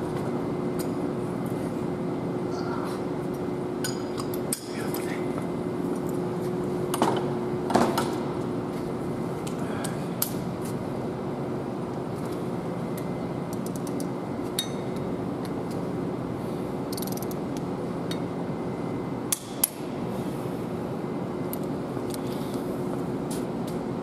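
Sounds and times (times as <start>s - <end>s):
steady shop hum: 0.0s - 24.0s
torque wrench clicks: 16.9s - 17.4s.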